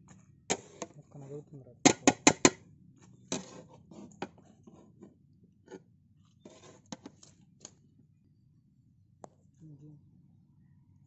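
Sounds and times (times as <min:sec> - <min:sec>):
metal spatula scraping a pot: 0:00.5 - 0:01.0, 0:03.2 - 0:05.0, 0:05.6 - 0:07.2.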